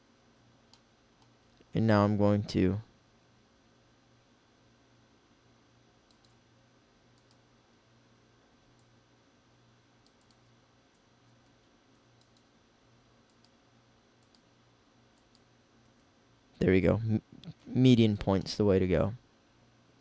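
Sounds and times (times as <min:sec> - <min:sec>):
faint low hum: 0:00.0 - 0:20.0
computer mouse clicks: 0:06.0 - 0:06.4, 0:07.1 - 0:07.4, 0:08.7 - 0:09.0, 0:10.0 - 0:12.6, 0:13.2 - 0:13.6, 0:14.2 - 0:14.5, 0:15.1 - 0:15.5.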